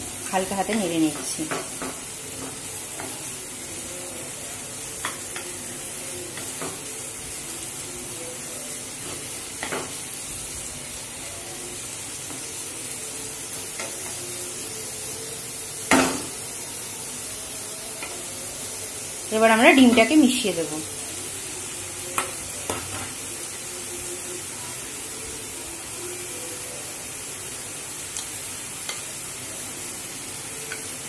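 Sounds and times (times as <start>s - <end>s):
onion sizzling in oil: 0.0s - 31.0s.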